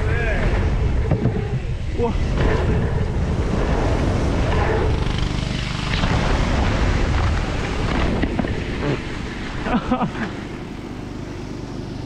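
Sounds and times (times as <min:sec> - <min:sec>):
generator droning: 0:00.0 - 0:12.0
wind rushing over microphone: 0:00.0 - 0:12.0.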